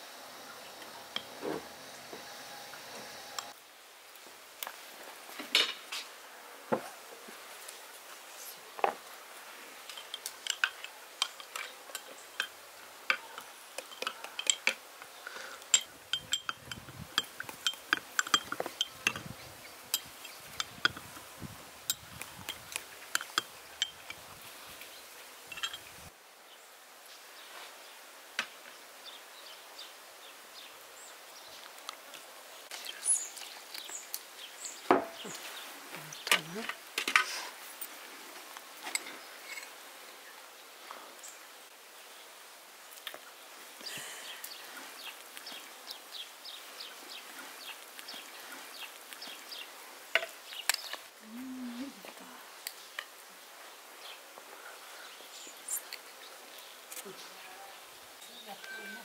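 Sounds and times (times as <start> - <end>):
spoon clinking against glass: 13.8 - 14.8, 15.7 - 21.2, 21.9 - 24.2, 25.5 - 25.9.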